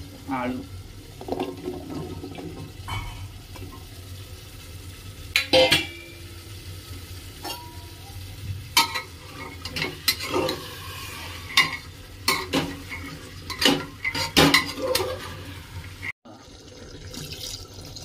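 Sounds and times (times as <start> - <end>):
food sizzling: 0.0 - 18.0
spatula scraping a pot: 8.9 - 15.8.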